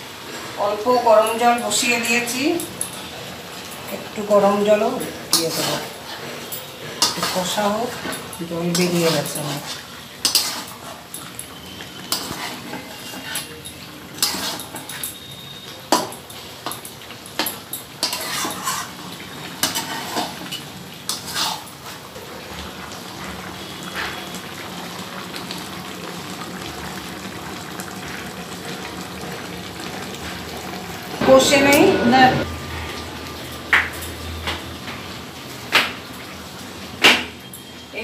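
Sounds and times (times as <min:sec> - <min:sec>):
chicken sizzling: 0:00.0 - 0:38.0
metal spatula scraping a pan: 0:02.8 - 0:16.2, 0:17.4 - 0:22.1.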